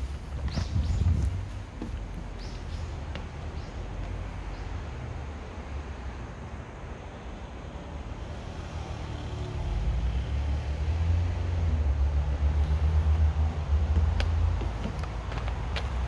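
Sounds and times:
vehicle engine rumble passing: 8.4 - 16.0.

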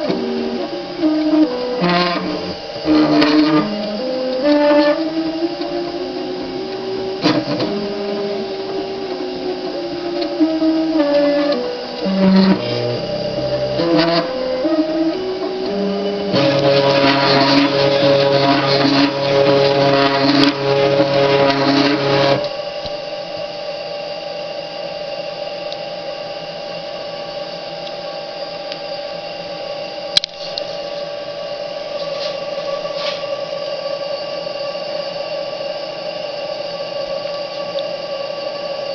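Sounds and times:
stepper motors whining: 0.0 - 22.9
steady machine hum: 0.0 - 38.9.

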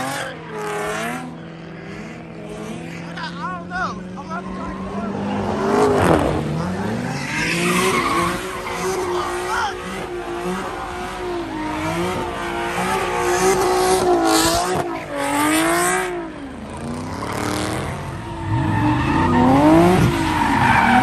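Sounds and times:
car engine revving: 0.0 - 21.0
tyres squealing on pavement: 7.0 - 10.0, 17.9 - 21.0.

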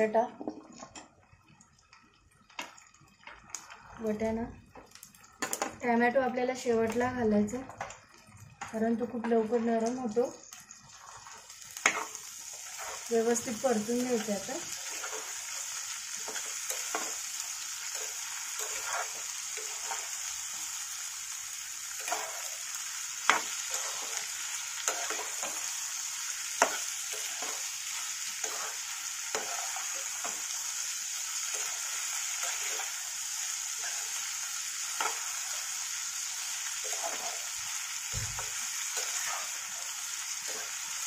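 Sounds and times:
vegetables sizzling in oil: 0.0 - 41.0
spatula scraping and knocking pan: 18.0 - 20.1, 23.2 - 25.6, 26.6 - 27.7, 28.4 - 30.5.

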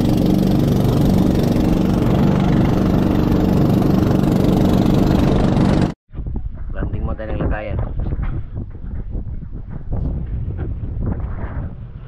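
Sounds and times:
boat engine droning: 0.0 - 6.0
water splashing along hull: 0.0 - 6.0.

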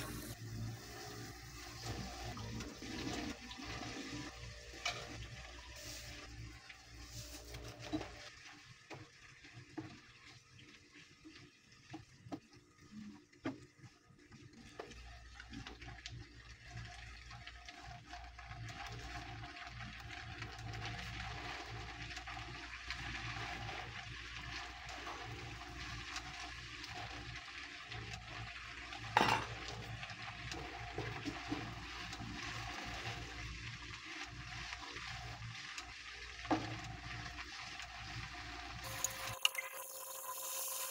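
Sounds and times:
food sizzling in a frying pan: 0.0 - 40.9.

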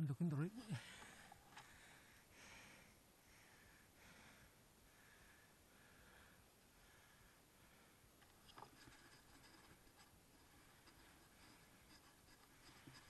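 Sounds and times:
faint scratchy ticking: 6.8 - 13.0.

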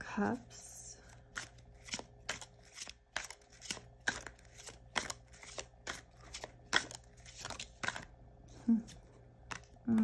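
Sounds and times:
cards clicking and snapping: 1.3 - 8.1, 9.4 - 10.0.

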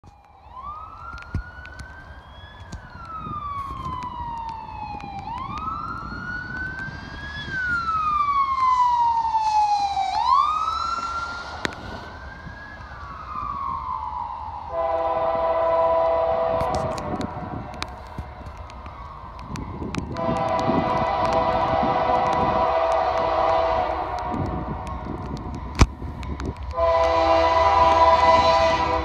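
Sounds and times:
siren wailing: 0.0 - 25.8, 26.5 - 29.0
locomotive horn chord: 14.7 - 17.8, 20.1 - 24.9, 26.7 - 29.0.

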